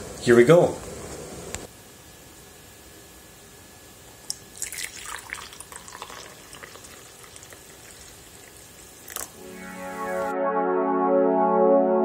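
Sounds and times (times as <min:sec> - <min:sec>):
coffee pouring into a mug: 0:04.3 - 0:09.4.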